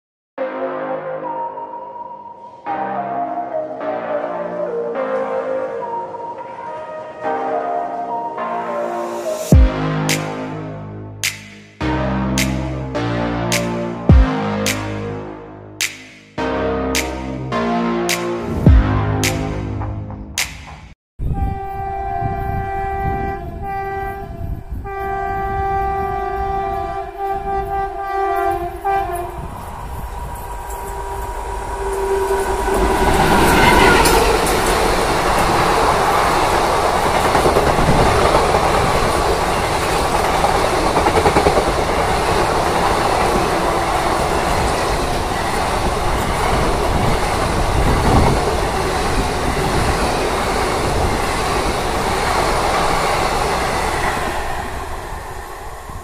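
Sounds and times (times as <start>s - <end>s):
train horn blasts: 21.2s - 36.2s
train coaches rushing past: 26.4s - 56.0s.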